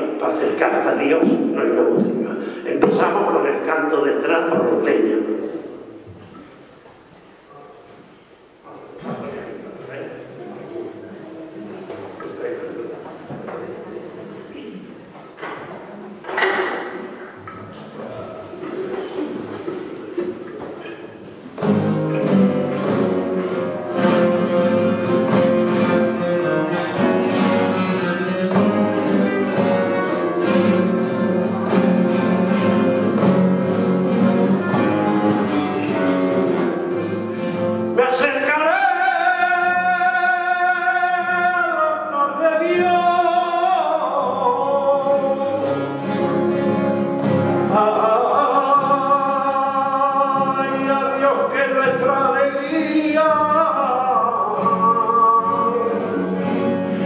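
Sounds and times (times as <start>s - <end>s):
man singing flamenco: 0.0s - 5.8s, 21.6s - 57.0s
flamenco guitar strumming: 18.6s - 57.0s.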